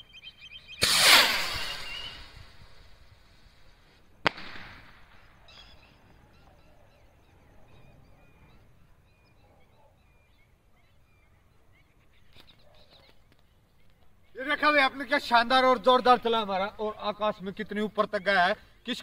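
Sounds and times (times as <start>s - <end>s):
faint chirping calls: 0.0s - 4.3s, 5.0s - 19.0s
firework bang with echo: 0.8s - 2.4s, 4.2s - 5.2s
skyrocket hissing: 0.8s - 3.7s.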